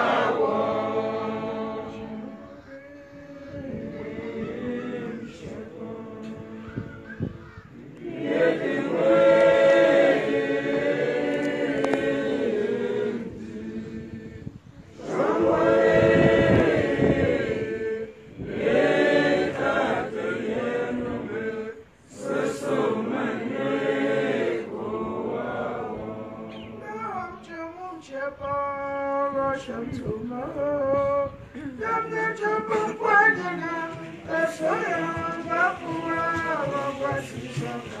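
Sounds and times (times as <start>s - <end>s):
voices singing a prayer song: 0.0s - 38.0s
breaths: 31.4s - 31.8s.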